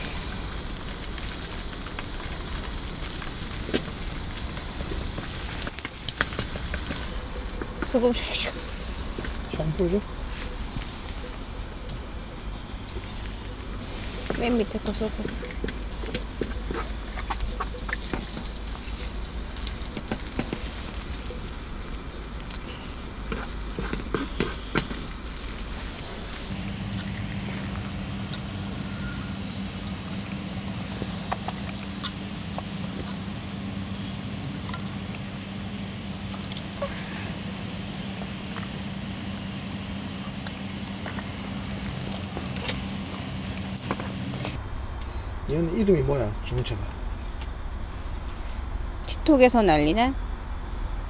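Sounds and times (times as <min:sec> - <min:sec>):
egg sizzling in a pan: 0:00.0 - 0:26.5
chopsticks stirring: 0:04.5 - 0:26.5.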